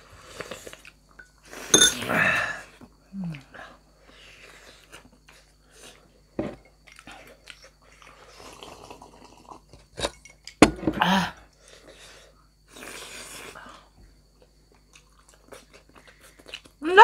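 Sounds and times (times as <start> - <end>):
chewing and biting dumplings: 14.7 - 16.8.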